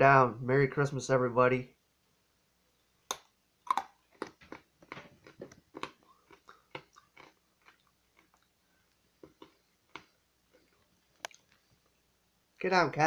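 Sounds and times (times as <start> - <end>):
candy crunching between teeth: 3.1 - 11.6.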